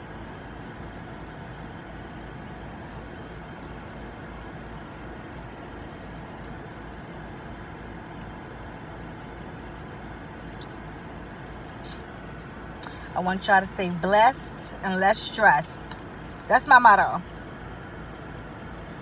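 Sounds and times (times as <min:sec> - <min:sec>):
car cabin rumble and hiss: 0:00.0 - 0:19.0.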